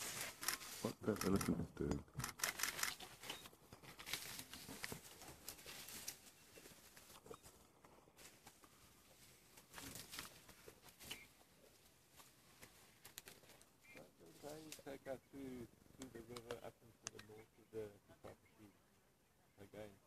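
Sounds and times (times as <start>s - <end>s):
dry grass rustling and crackling: 0.0s - 0.9s, 2.4s - 15.0s.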